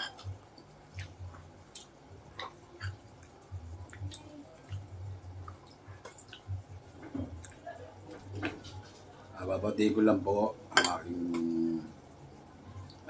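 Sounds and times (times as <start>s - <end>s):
people chewing: 0.0s - 9.1s.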